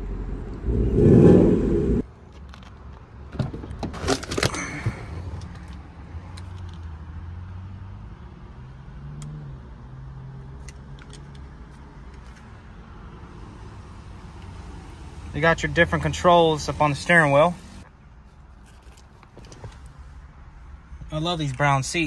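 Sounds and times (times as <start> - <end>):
loud low rumble: 0.0 - 2.0.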